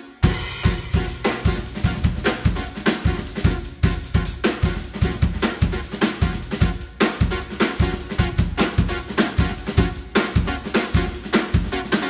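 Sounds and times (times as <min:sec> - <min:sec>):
drum kit playing: 0:00.0 - 0:12.0
deep bass: 0:00.2 - 0:06.8
repeating keyboard figure: 0:00.2 - 0:12.0.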